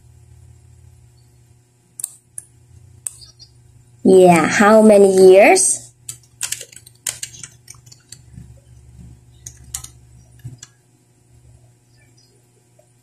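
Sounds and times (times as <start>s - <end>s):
laptop keyboard typing: 6.0s - 10.8s.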